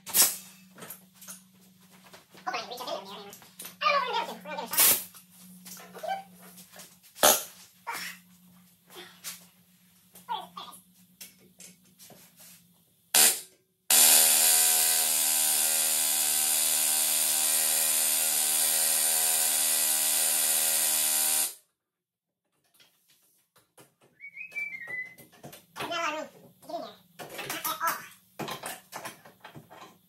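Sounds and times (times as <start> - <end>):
pneumatic air tool hammering: 0.0 - 0.5, 13.2 - 21.6.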